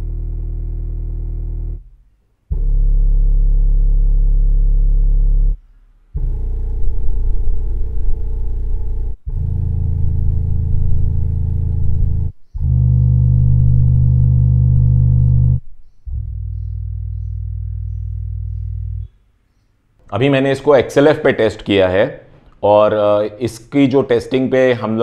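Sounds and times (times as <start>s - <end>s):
subwoofer deep test tones: 0.0s - 19.3s.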